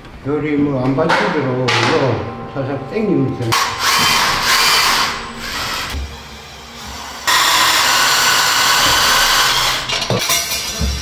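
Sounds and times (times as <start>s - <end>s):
electric winch motor running: 3.6s - 10.2s.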